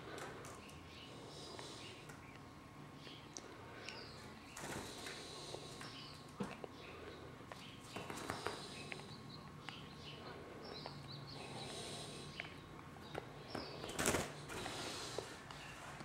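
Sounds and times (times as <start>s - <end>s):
bird wings flapping: 13.8s - 14.7s.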